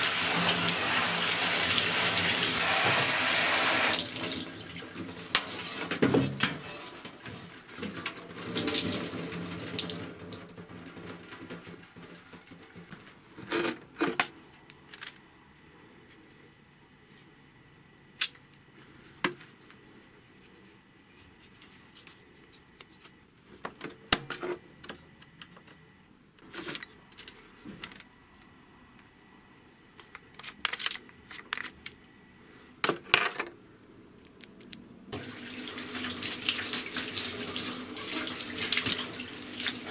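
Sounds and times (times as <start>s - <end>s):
shower water splashing on plastic: 0.0s - 6.0s, 7.5s - 12.7s, 35.1s - 39.9s.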